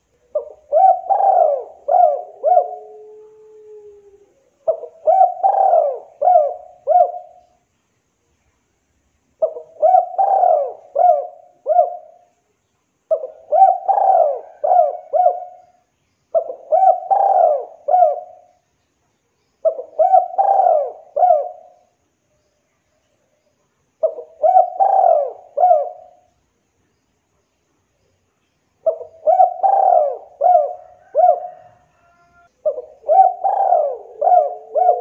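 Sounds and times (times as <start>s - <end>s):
dove cooing: 0.0s - 7.5s, 9.4s - 12.3s, 13.1s - 18.6s, 19.6s - 21.9s, 24.0s - 26.3s, 28.8s - 35.0s.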